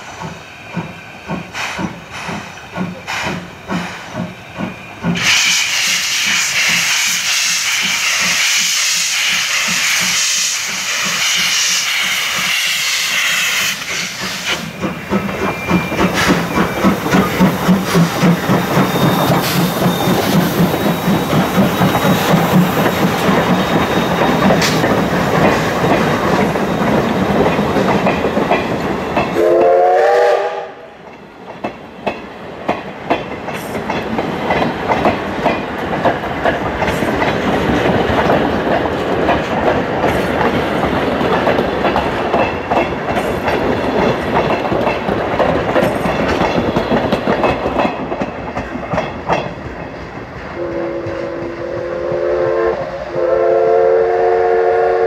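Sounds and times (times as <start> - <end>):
hiss of steam: 0.0 - 26.9
train wheels clickety-clack: 0.0 - 55.0
steam whistle: 29.4 - 30.9, 50.6 - 55.0.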